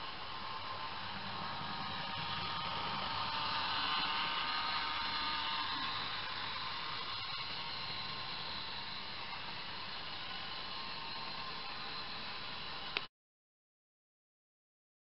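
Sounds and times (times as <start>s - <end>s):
small electric motors whirring: 0.0s - 13.1s.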